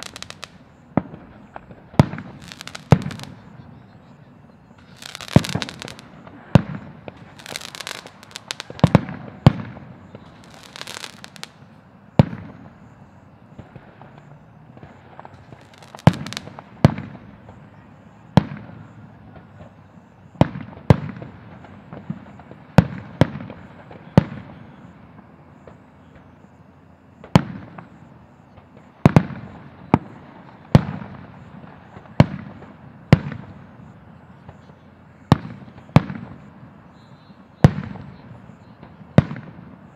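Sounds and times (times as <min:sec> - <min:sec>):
firework shells bursting: 0:00.0 - 0:03.5, 0:04.7 - 0:12.9, 0:13.5 - 0:17.6
hissing crackle: 0:00.0 - 0:39.9.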